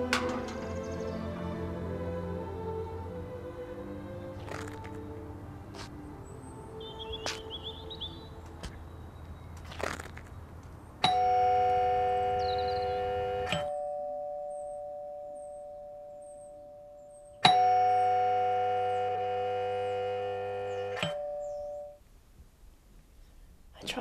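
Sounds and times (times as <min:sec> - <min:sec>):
two-tone door chime: 0:11.0 - 0:22.0.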